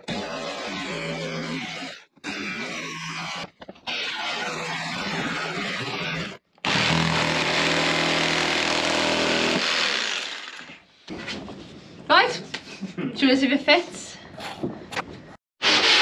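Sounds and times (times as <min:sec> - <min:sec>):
jigsaw cutting wood: 0:00.0 - 0:10.8, 0:15.6 - 0:16.0.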